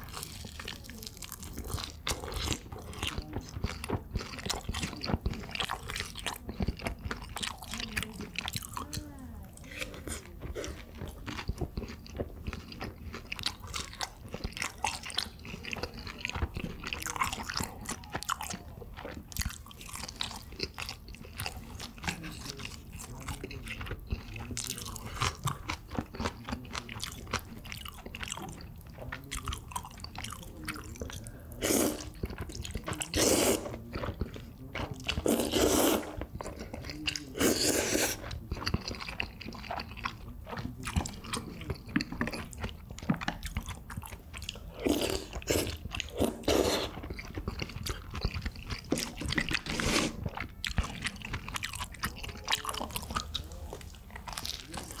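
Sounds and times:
person chewing food: 0.0s - 55.0s
noodles slurping: 19.1s - 55.0s.

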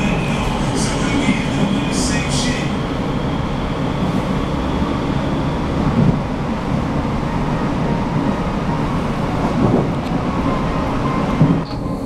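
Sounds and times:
train wheels rumbling: 0.0s - 12.0s.

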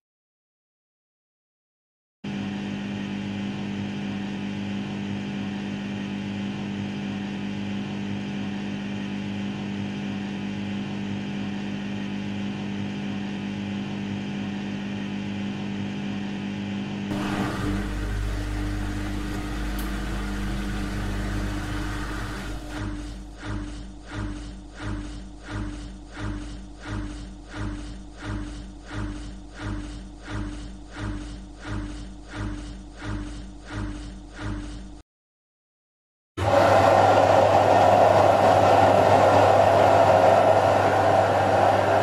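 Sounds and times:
deep rumble: 17.1s - 23.2s
washing machine motor hum: 17.1s - 35.0s, 36.4s - 42.0s.

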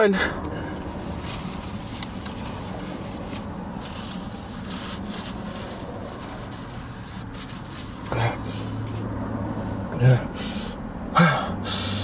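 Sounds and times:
low hum inside a car: 0.0s - 12.0s
soft rustling and rubbing: 0.8s - 9.1s.

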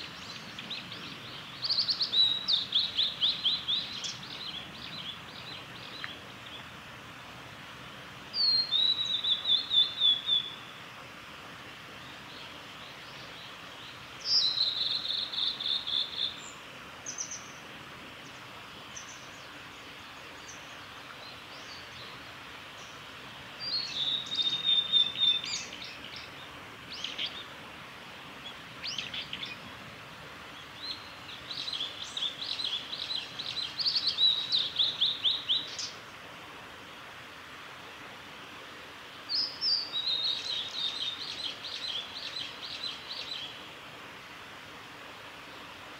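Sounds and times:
bird singing whistled trills: 8.4s - 10.7s, 14.2s - 16.5s, 23.6s - 26.0s, 39.3s - 43.5s.

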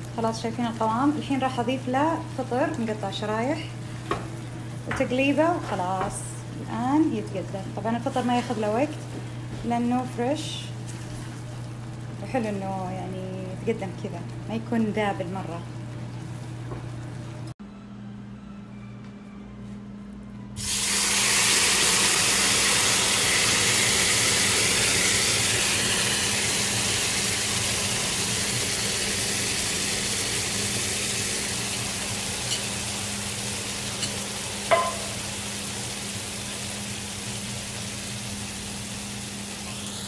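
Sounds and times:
shrimp sizzling on hot plate: 20.6s - 40.0s.

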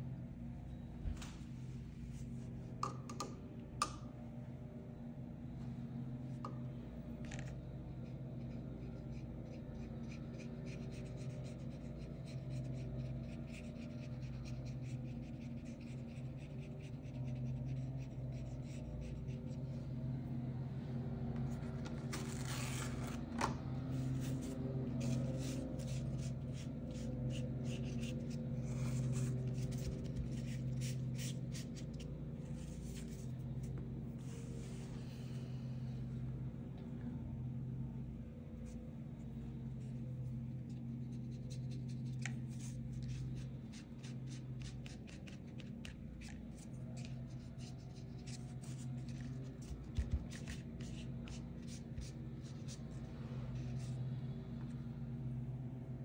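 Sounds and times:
steady low hum: 0.0s - 56.0s
pencil scratching on paper: 8.0s - 19.6s, 23.9s - 33.3s.

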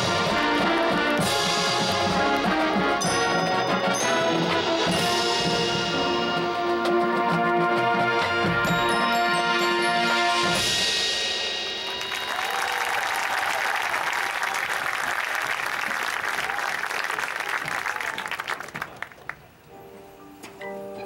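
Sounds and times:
marching band chord: 0.0s - 12.6s
crowd applauding: 11.8s - 19.6s.

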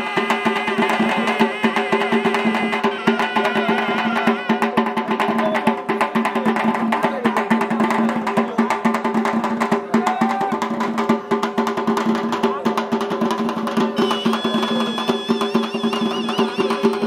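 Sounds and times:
fast drumming on barrel drums: 0.0s - 17.0s.

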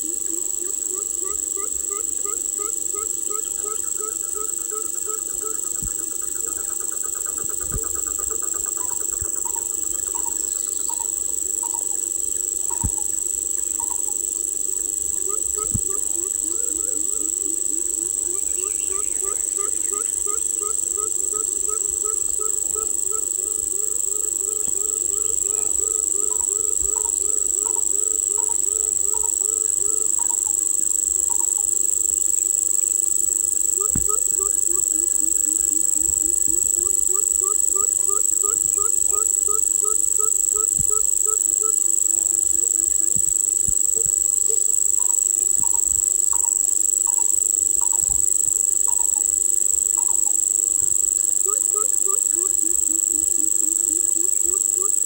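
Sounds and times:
high-pitched insect drone: 0.0s - 55.0s.

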